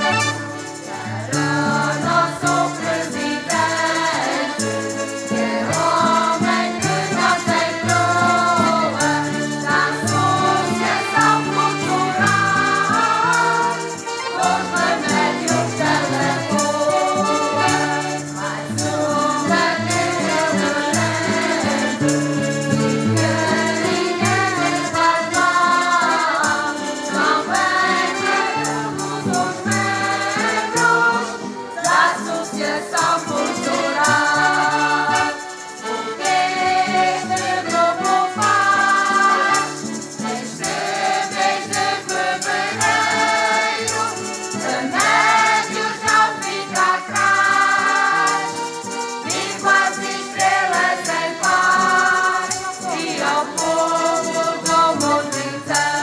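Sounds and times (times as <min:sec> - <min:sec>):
accordions playing: 0:00.0 - 0:56.0
acoustic guitar: 0:00.0 - 0:56.0
mixed choir singing: 0:00.0 - 0:56.0.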